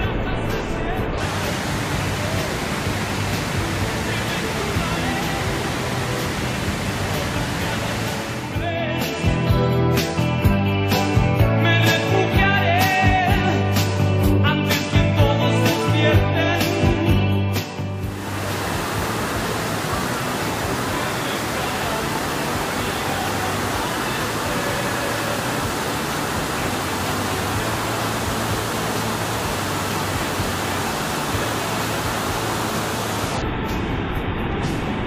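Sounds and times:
music: 0:00.0 - 0:35.0
waterfall roaring: 0:01.2 - 0:08.7, 0:18.1 - 0:33.5.

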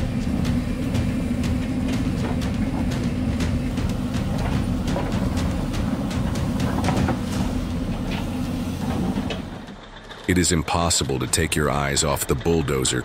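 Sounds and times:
knocks and clatter: 0:00.0 - 0:10.3
excavator diesel engine running: 0:00.0 - 0:13.0.

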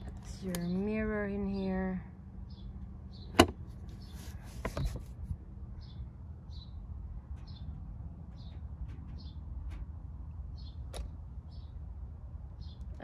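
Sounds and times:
short rustle: 0:03.8 - 0:05.4.

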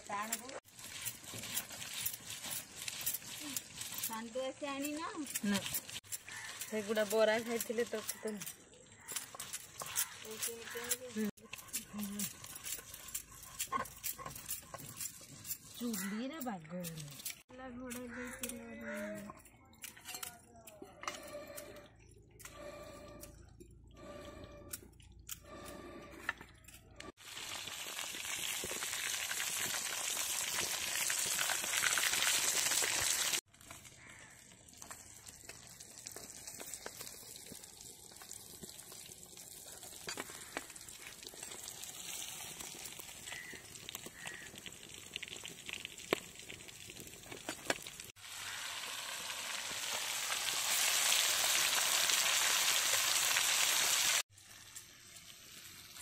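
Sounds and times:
fish frying in hot oil: 0:00.0 - 0:08.2, 0:27.2 - 0:56.0
clinks and handling noise: 0:08.1 - 0:23.9.

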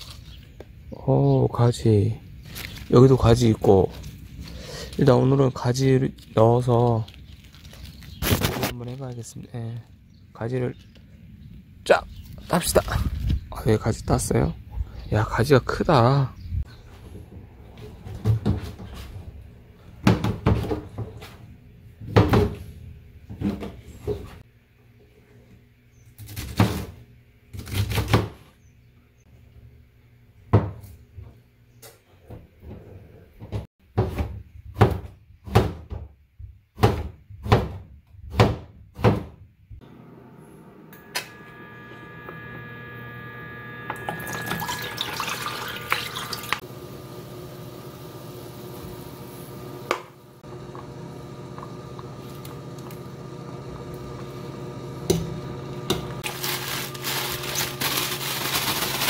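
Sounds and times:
pot boiling: 0:42.9 - 0:57.8
broth pouring into pot: 0:44.2 - 0:46.6.

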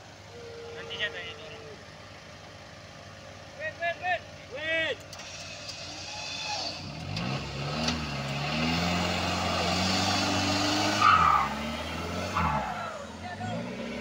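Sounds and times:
engine revving under load: 0:05.1 - 0:14.0.

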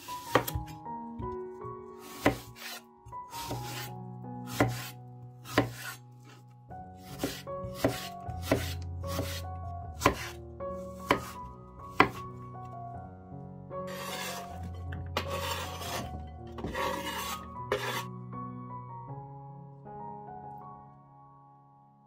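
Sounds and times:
background music with sustained notes: 0:00.0 - 0:22.0
knife chopping on cutting board: 0:00.2 - 0:00.7, 0:02.0 - 0:02.8, 0:03.4 - 0:03.9, 0:04.5 - 0:06.0, 0:07.0 - 0:09.4, 0:10.0 - 0:10.4, 0:11.0 - 0:12.2.

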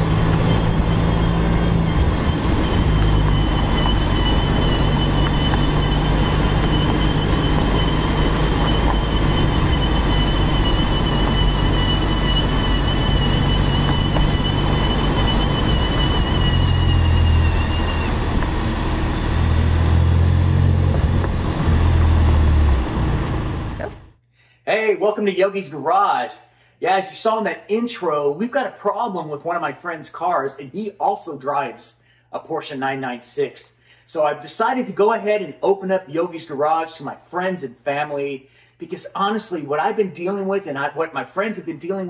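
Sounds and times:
road and wind noise: 0:00.0 - 0:24.1
wheel bearing whine: 0:00.0 - 0:24.2.

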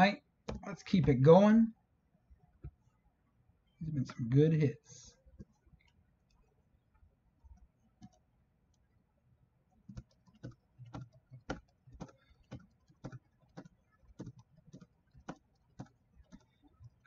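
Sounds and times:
computer keys clicking: 0:09.8 - 0:17.0.

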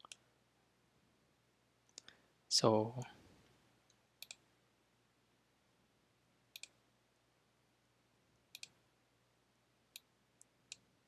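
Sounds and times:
computer mouse clicks: 0:00.0 - 0:00.2, 0:03.9 - 0:04.4, 0:06.5 - 0:06.8, 0:08.5 - 0:08.8, 0:10.0 - 0:10.9.

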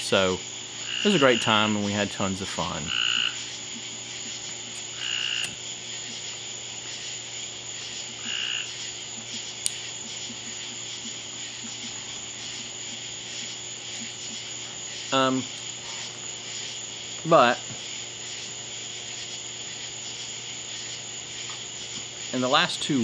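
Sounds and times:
frogs croaking: 0:00.0 - 0:23.0
steady background hum: 0:00.0 - 0:23.0
sharp click: 0:04.8 - 0:05.6.

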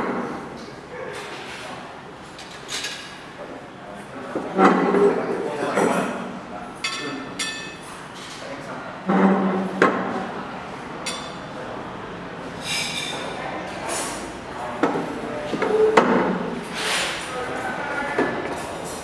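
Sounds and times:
plates and cutlery clinking: 0:06.8 - 0:08.4, 0:12.6 - 0:19.0.

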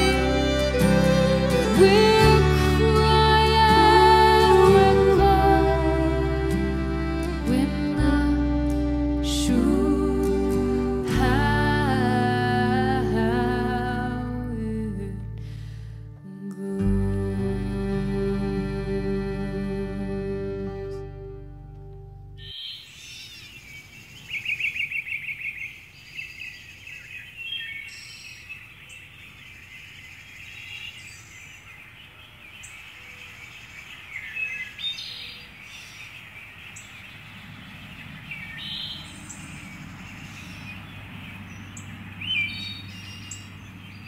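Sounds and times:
birds calling and chirping: 0:22.4 - 0:44.0
loud rapid bird trill: 0:32.7 - 0:44.0.

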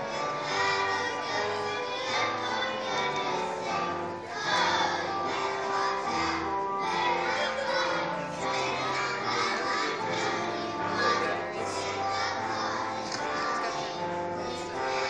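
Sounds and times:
children's choir singing: 0:00.0 - 0:15.0
musical accompaniment: 0:00.0 - 0:15.0.

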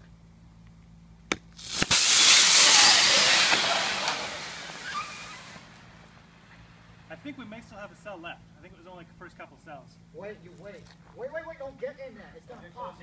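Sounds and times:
battery venting loud hiss: 0:01.4 - 0:07.8.

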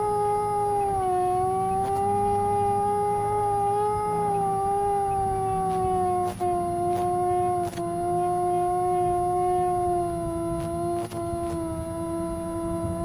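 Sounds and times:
electric ducted fans whining: 0:00.0 - 0:13.0.

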